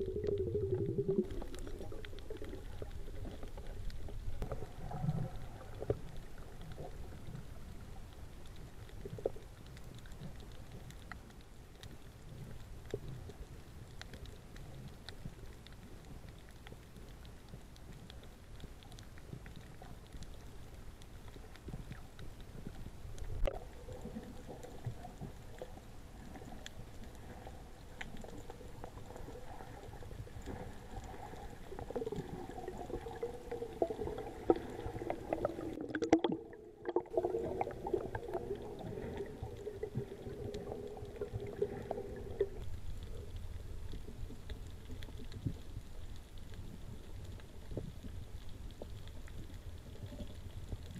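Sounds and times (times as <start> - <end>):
faint crackling clicks: 0.0 - 50.9
low underwater rush: 0.0 - 50.9.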